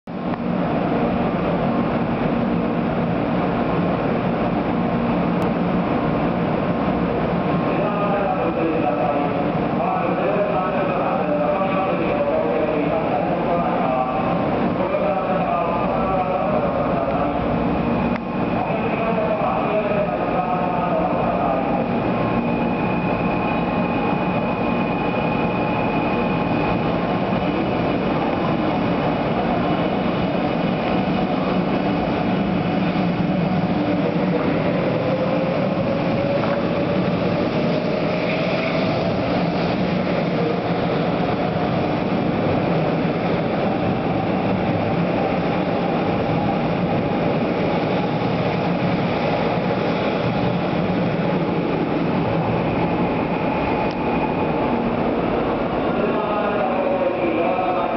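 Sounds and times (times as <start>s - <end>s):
train wheels rumbling: 0.1s - 57.9s.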